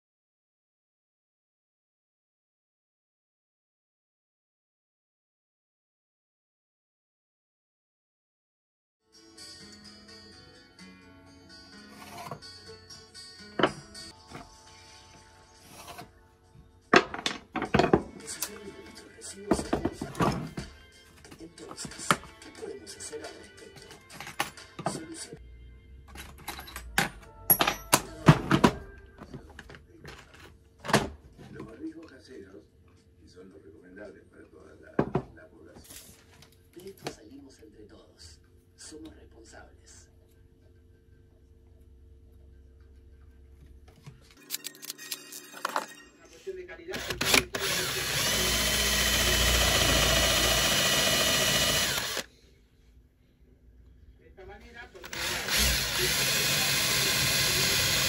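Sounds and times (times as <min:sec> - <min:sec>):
tools and plastic case rattling: 0:24.0 - 0:25.0
power drill boring into plywood: 0:47.0 - 0:52.3, 0:55.0 - 0:58.0.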